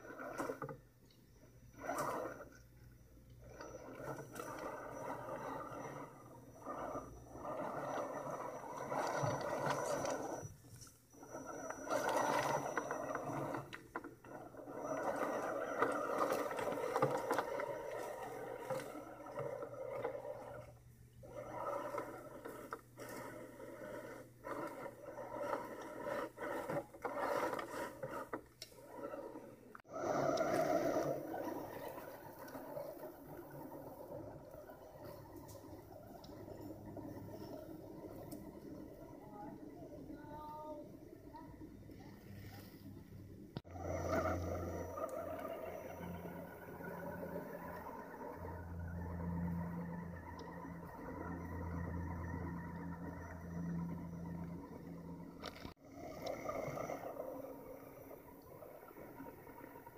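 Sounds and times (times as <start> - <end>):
toy car motor whining: 0.0 - 43.0, 43.6 - 59.9
tyres scraping on stone: 3.6 - 39.1.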